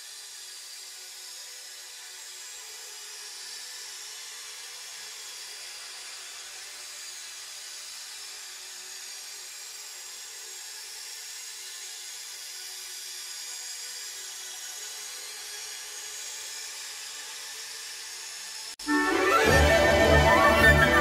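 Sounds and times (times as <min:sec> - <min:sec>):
synthesizer music with held tones: 0:18.8 - 0:21.0.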